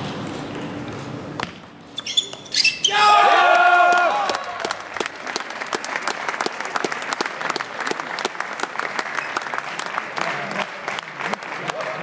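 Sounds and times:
spectators applauding: 0:03.5 - 0:12.0.

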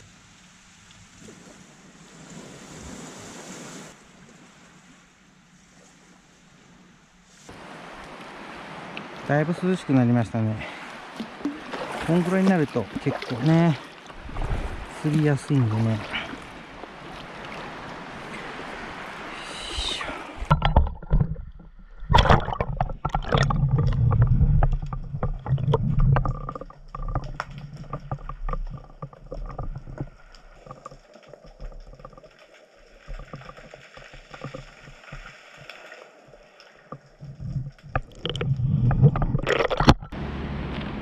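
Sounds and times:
gurgling water: 0:08.9 - 0:40.2.

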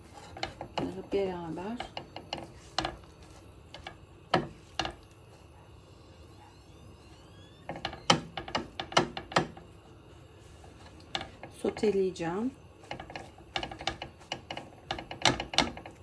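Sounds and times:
spatula scraping a frying pan: 0:00.0 - 0:05.0, 0:10.4 - 0:12.0, 0:12.8 - 0:16.0.

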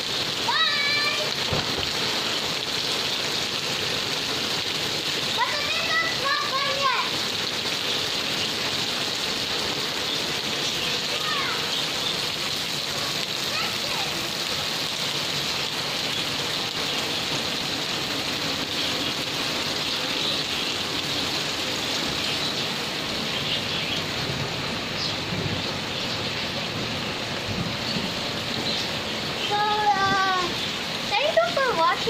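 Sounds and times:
rain falling on grass: 0:00.0 - 0:32.0.

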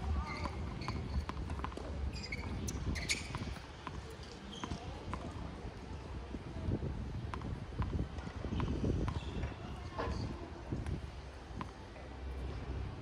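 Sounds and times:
tennis ball bouncing on court: 0:00.3 - 0:05.4, 0:07.3 - 0:09.6.

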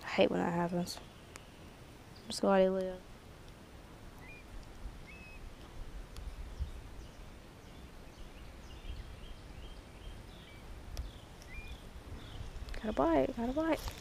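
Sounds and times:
faint bird chirps: 0:04.2 - 0:05.5, 0:06.2 - 0:13.3
wind on microphone: 0:04.2 - 0:14.0.

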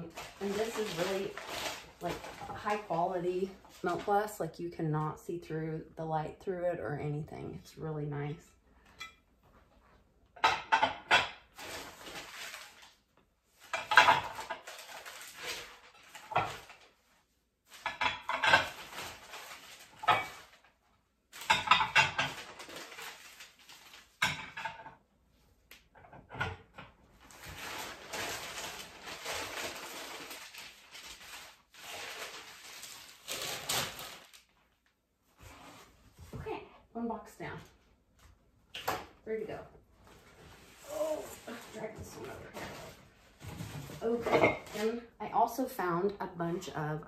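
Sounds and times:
newspaper rustling: 0:00.0 - 0:04.3, 0:11.6 - 0:13.0, 0:14.3 - 0:17.0, 0:18.6 - 0:20.7, 0:22.3 - 0:24.2, 0:27.2 - 0:34.8.

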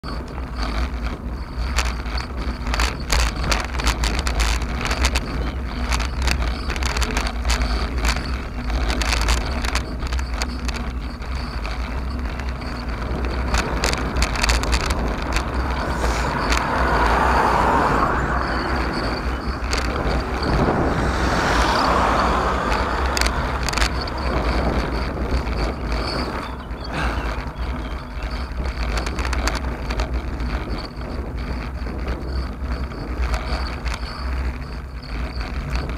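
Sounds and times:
clicks and rattles from road: 0:00.0 - 0:35.9
wind buffeting microphone: 0:00.0 - 0:35.9
car passing: 0:15.2 - 0:27.4.

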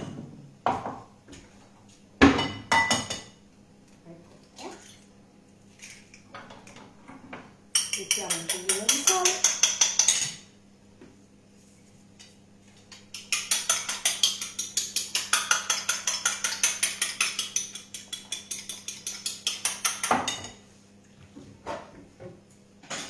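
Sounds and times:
utensil beating egg on a plate: 0:07.7 - 0:10.5, 0:12.6 - 0:20.6.

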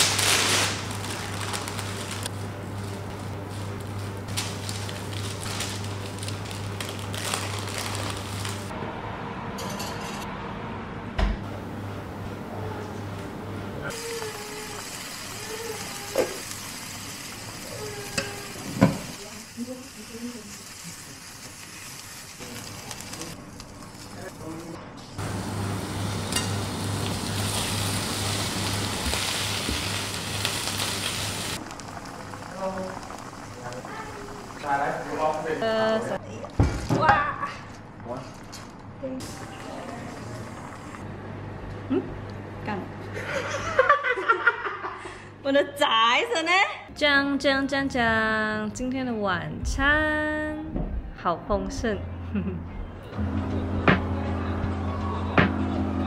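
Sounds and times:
paper and plastic gloves crinkling: 0:00.0 - 0:08.7
prawns sizzling in hot oil: 0:13.9 - 0:35.7.

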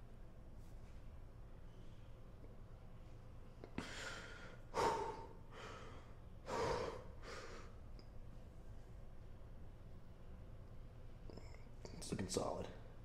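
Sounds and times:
man breathing heavily: 0:03.6 - 0:07.9.

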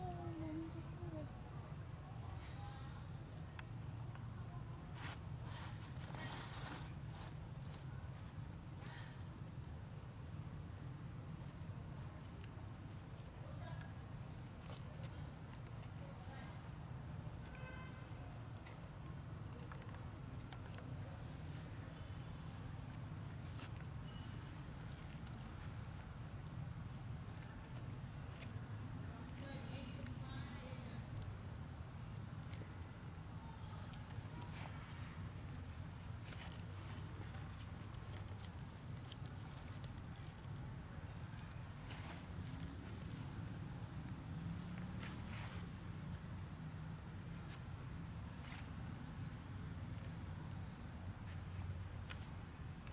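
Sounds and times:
faint ticks and rustles: 0:17.4 - 0:52.9.

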